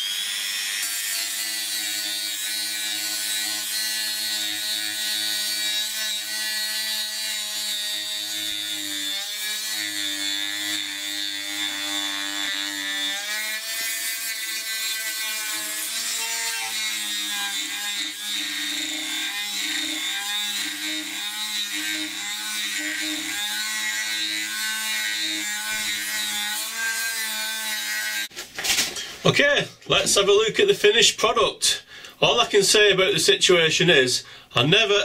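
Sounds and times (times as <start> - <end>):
rotary tool sanding metal: 0.0 - 28.3.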